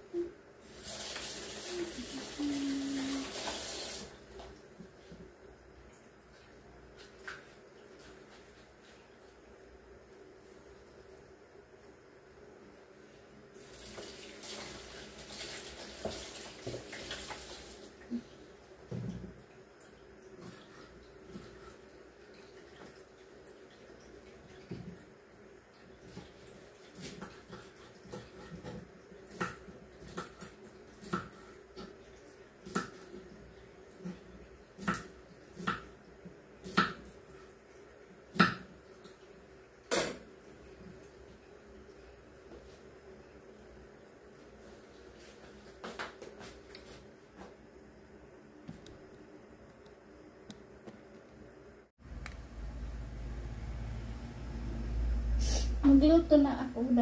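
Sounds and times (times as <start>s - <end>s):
faint steady hum: 0.0s - 57.0s
kitchen tap running: 0.6s - 4.5s, 13.6s - 18.2s.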